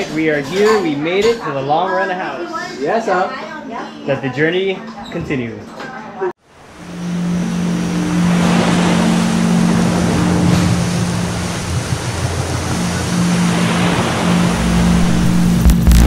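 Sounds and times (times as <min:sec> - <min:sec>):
ocean surf rushing: 0:06.5 - 0:16.0
steady low drone: 0:06.7 - 0:16.0.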